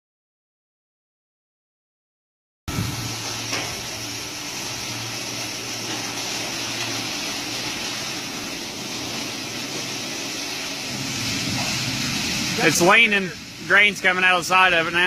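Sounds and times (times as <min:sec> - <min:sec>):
machinery drone with low hum: 0:02.7 - 0:15.0.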